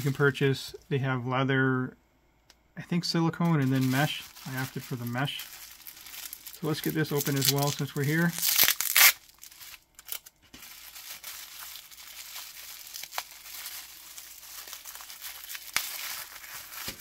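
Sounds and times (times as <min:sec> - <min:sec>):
bubble wrap crinkling: 0:00.0 - 0:00.4, 0:03.4 - 0:17.0
bubble wrap crackles: 0:03.4 - 0:17.0.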